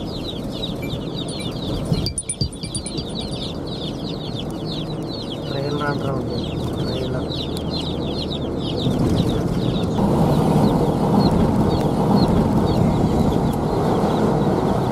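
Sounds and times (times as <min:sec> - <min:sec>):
vehicle road and engine noise: 0:00.0 - 0:14.9
short high chirps: 0:01.3 - 0:03.5.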